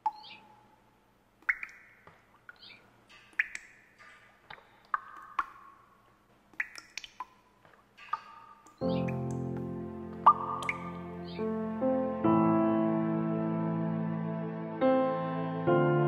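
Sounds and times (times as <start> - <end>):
bird-like chirps: 0.0 - 0.8, 1.5 - 2.8, 8.0 - 9.2.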